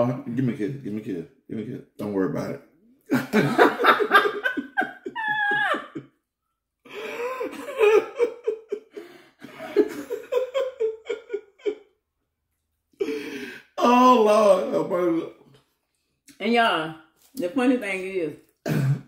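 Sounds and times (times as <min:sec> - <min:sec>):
person laughing: 0:03.1 - 0:06.0, 0:06.9 - 0:11.8.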